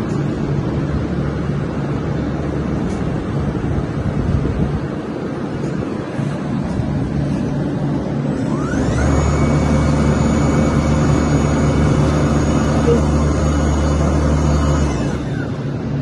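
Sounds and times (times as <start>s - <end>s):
machinery hum: 0.0s - 16.0s
machine motor whining: 8.0s - 16.0s.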